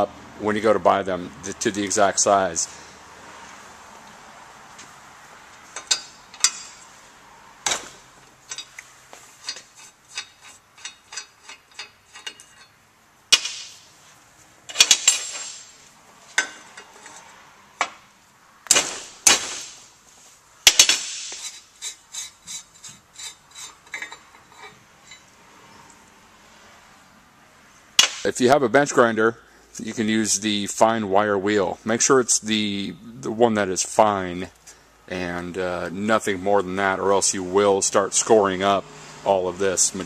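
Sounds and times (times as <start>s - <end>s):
metal clanks: 5.7s - 7.0s, 7.6s - 13.9s, 14.7s - 18.0s, 20.6s - 25.4s, 28.0s - 28.3s
wrench clicking: 5.8s - 6.8s, 8.5s - 12.7s, 20.7s - 25.2s.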